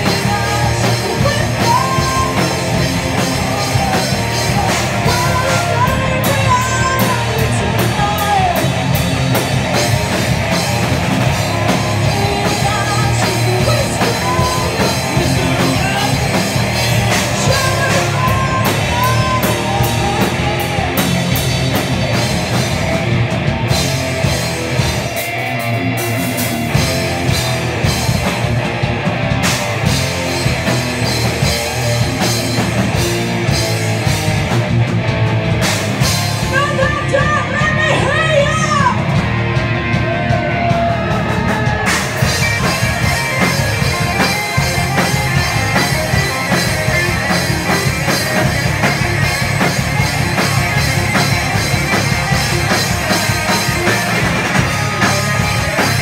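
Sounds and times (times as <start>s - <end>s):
woman singing: 0.0s - 2.7s, 3.4s - 8.7s, 12.0s - 16.4s, 17.2s - 20.9s
bass guitar: 0.0s - 56.0s
distorted electric guitars: 0.0s - 56.0s
drum kit: 0.0s - 56.0s.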